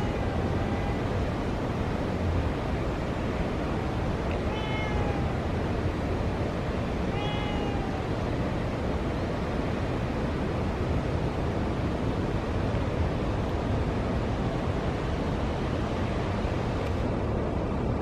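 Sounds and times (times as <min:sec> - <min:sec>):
cat meowing: 0:00.0 - 0:01.3, 0:03.8 - 0:05.6, 0:07.0 - 0:08.2.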